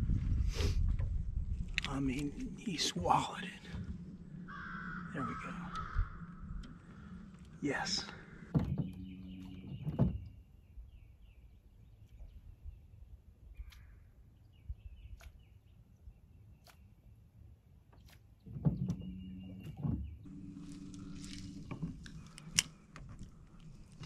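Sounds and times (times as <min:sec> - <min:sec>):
motor hum with high whine: 0:20.3 - 0:24.0.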